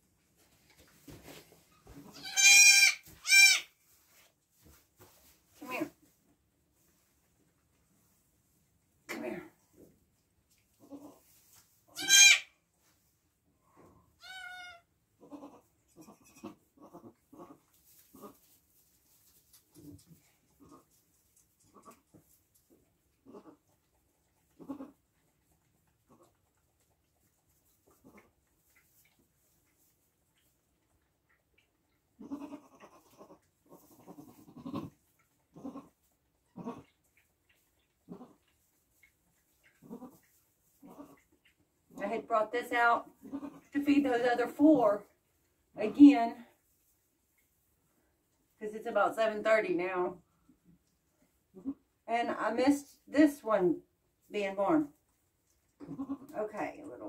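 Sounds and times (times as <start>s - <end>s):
goats bleating: 12.0s - 12.4s.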